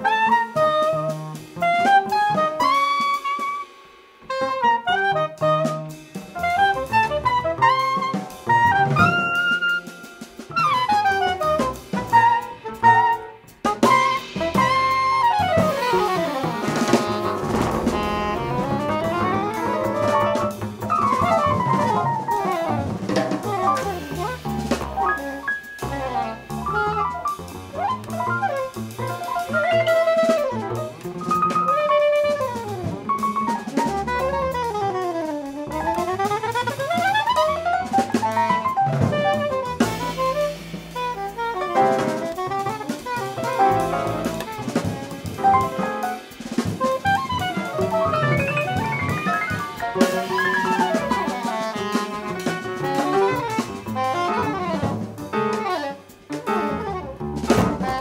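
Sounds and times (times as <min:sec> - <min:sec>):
double bass: 0:00.0 - 0:02.8, 0:04.3 - 0:58.0
soprano saxophone: 0:00.0 - 0:03.7, 0:04.3 - 0:58.0
drum kit: 0:00.0 - 0:58.0
piano: 0:00.0 - 0:58.0.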